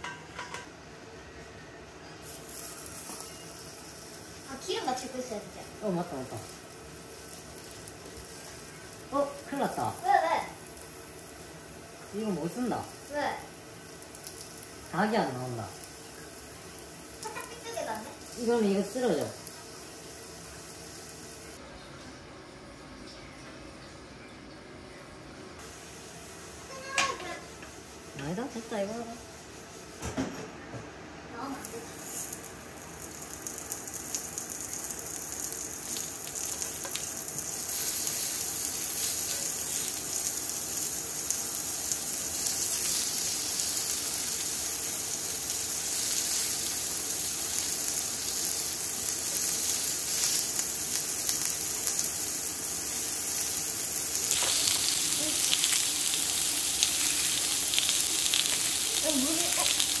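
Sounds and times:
food sizzling in a hot pan: 0:02.2 - 0:21.6, 0:25.6 - 0:30.4, 0:31.3 - 1:00.0.

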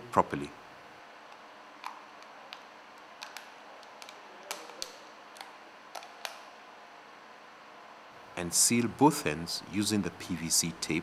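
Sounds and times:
plastic clicks and taps: 0:01.8 - 0:06.4.

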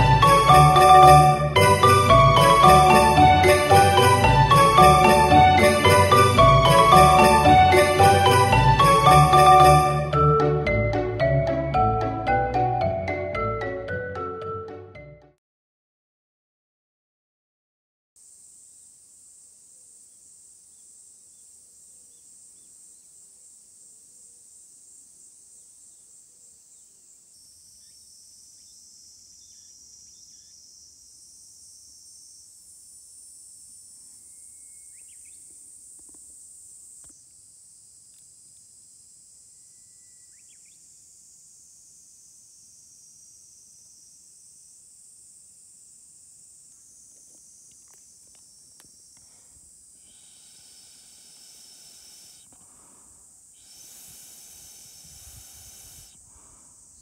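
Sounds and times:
insect chorus: 0:00.0 - 0:10.7, 0:18.2 - 0:57.0
faint chirps: 0:19.6 - 0:32.9, 0:33.7 - 0:36.1, 0:39.6 - 0:41.0, 0:46.7 - 0:57.0.

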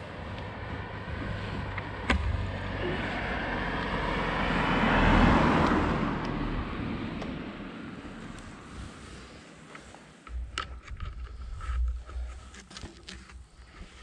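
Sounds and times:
car passing by: 0:00.3 - 0:09.6.

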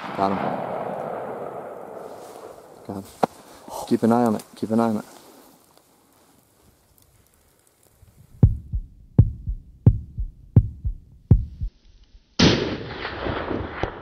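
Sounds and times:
loud rifle shot: 0:00.0 - 0:02.9, 0:12.4 - 0:14.0
heartbeat lub-dub beats: 0:08.4 - 0:11.8.

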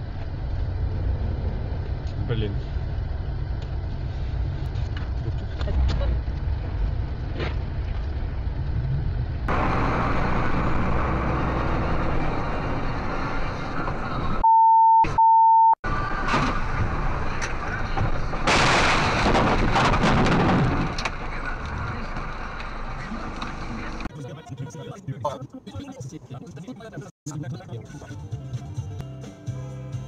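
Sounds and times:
car road and engine noise: 0:00.0 - 0:14.6, 0:15.2 - 0:30.0
high censor bleep: 0:14.4 - 0:15.8.

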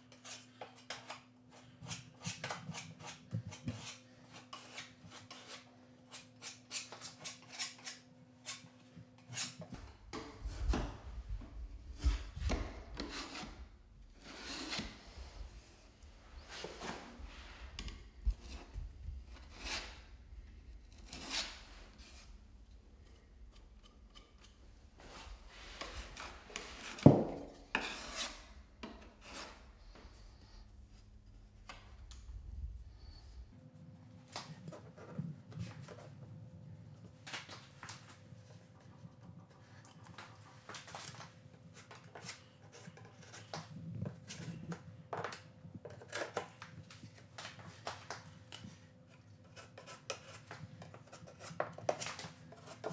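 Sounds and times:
putty knife scraping wood: 0:00.1 - 0:10.2, 0:12.0 - 0:15.1, 0:19.3 - 0:20.1, 0:20.8 - 0:22.4, 0:23.0 - 0:30.3, 0:48.5 - 0:52.9.

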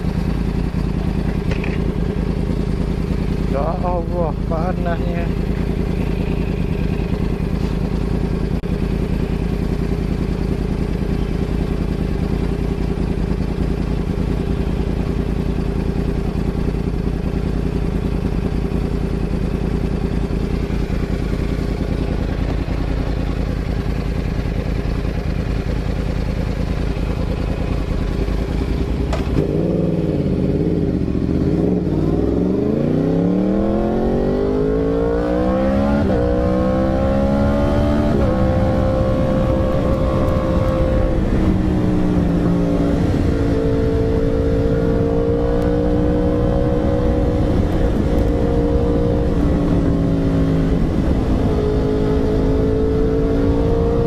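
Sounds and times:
motorcycle engine idling: 0:00.0 - 0:32.6
motorcycle accelerating: 0:00.0 - 0:54.0.

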